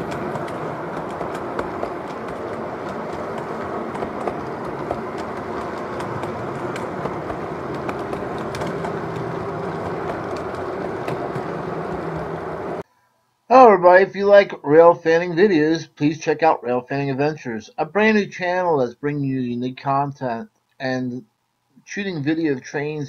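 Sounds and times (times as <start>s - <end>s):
model train cars rumbling: 0.0s - 12.8s.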